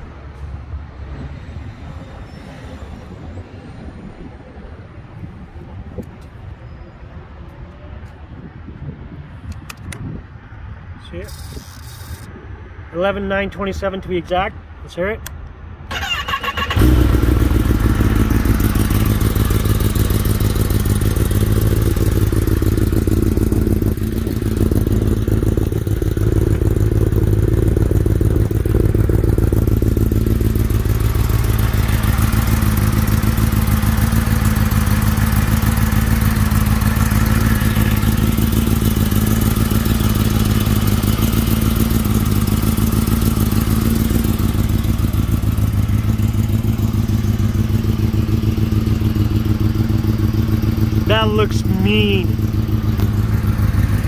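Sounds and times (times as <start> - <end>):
motorcycle engine idling: 16.0 - 54.0.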